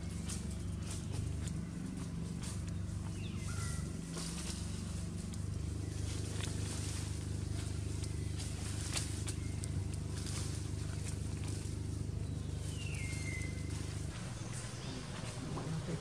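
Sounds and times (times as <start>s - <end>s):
crackles of dry leaf litter: 0.0s - 16.0s
steady low hum: 0.0s - 16.0s.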